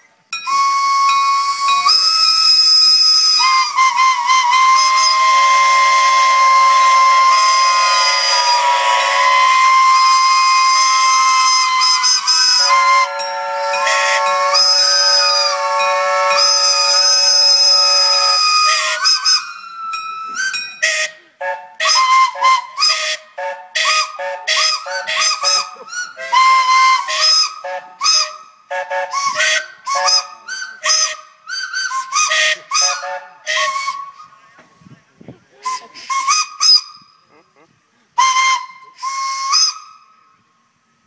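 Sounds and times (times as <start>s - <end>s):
steam whistles blowing: 0.0s - 37.4s, 38.2s - 41.0s
steam hissing: 0.5s - 27.5s, 37.3s - 39.8s.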